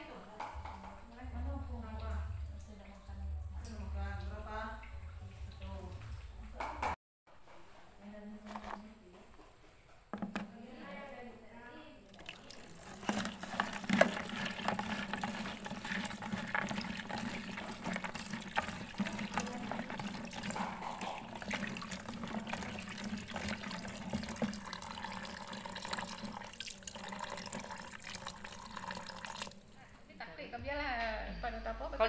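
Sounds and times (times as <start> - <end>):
hand splashing and stirring: 12.0 - 29.7
tap water running into a tub: 12.0 - 29.8.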